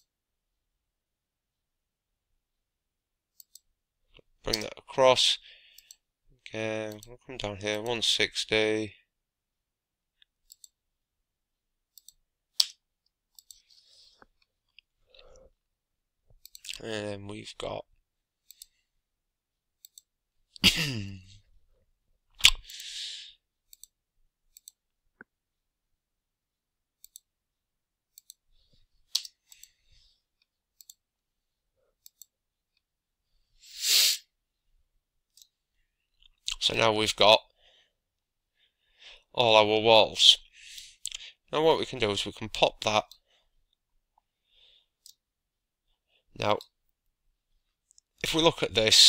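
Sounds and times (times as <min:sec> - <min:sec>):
computer mouse clicks: 0:03.4 - 0:03.7, 0:10.2 - 0:10.8, 0:11.9 - 0:13.8, 0:16.4 - 0:16.8, 0:18.4 - 0:18.8, 0:19.8 - 0:20.1, 0:23.7 - 0:25.3, 0:27.0 - 0:27.3, 0:28.1 - 0:28.4, 0:29.1 - 0:29.8, 0:30.8 - 0:31.0, 0:32.0 - 0:32.4, 0:35.3 - 0:35.6.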